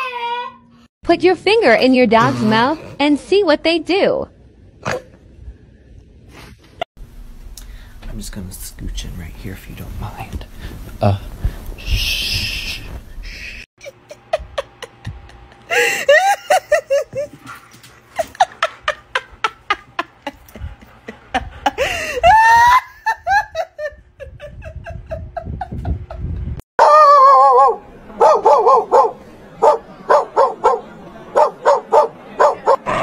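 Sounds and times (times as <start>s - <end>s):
person laughing: 13.8s - 17.5s, 18.1s - 26.6s
dog barking: 26.8s - 32.8s.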